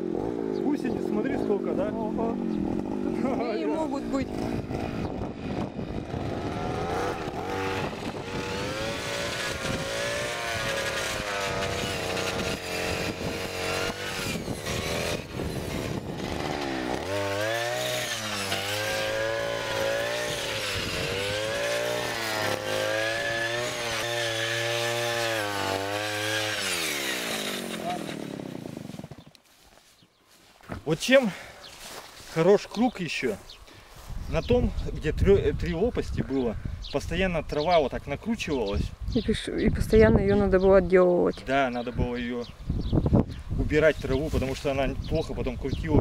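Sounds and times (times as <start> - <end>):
brush cutter engine at high revs: 0.0 - 29.6.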